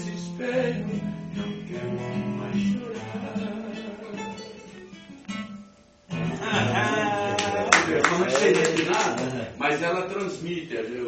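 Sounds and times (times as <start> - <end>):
classical guitar chords: 0.0 - 10.4
man's voice: 6.9 - 11.0.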